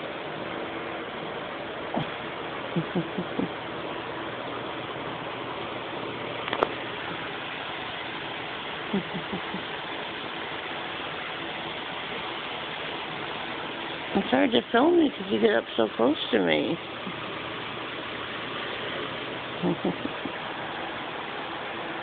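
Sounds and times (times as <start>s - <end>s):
cat purring: 19.6s - 20.4s.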